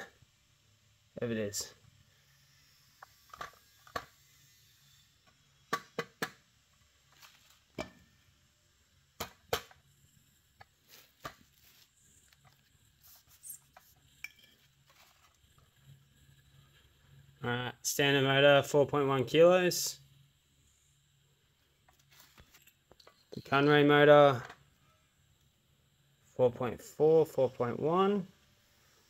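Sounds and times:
low steady hum: 6.4 - 29.0.

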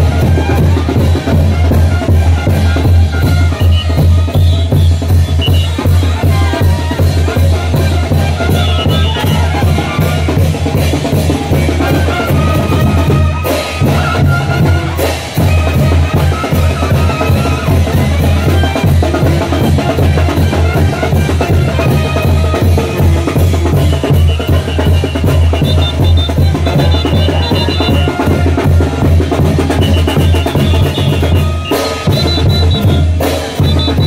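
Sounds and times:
bass drum: 0.0 - 34.0
brass band playing dance music: 0.0 - 34.0
snare drum: 0.0 - 34.0.

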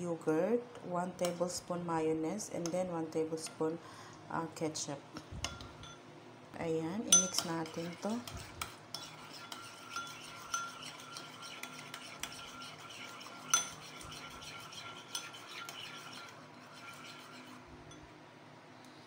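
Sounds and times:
metal spoon stirring in a bowl: 5.4 - 6.0, 7.0 - 18.1
spoon clinking against bowl: 7.1 - 8.0, 8.9 - 12.4, 13.5 - 14.2.

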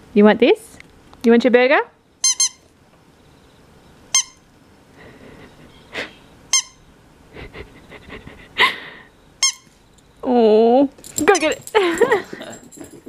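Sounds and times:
squeaky dog toy squeaks: 2.2 - 2.7, 4.1 - 4.4, 6.5 - 6.8, 9.4 - 9.8.

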